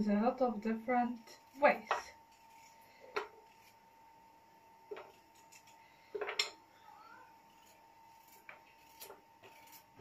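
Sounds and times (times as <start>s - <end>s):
knife cutting potato: 7.4s - 10.0s.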